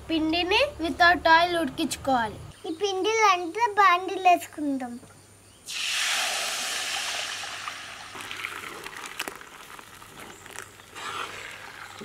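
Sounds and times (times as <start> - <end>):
batter hissing in hot pan: 5.6 - 12.0.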